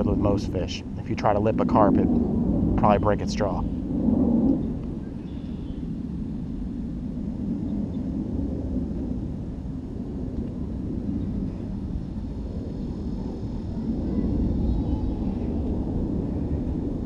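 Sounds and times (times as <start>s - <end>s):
steady low rumbling: 0.0s - 17.0s.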